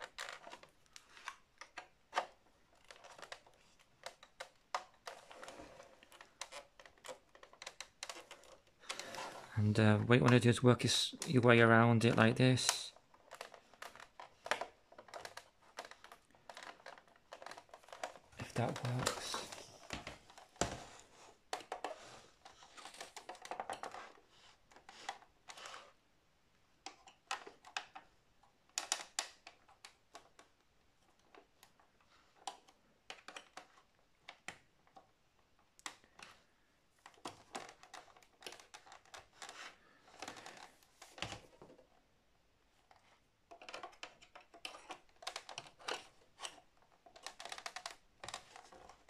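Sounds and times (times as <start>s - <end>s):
plastic clips clicking and snapping: 0.0s - 9.2s, 12.0s - 20.7s, 28.7s - 35.1s, 37.0s - 41.9s, 42.9s - 49.0s.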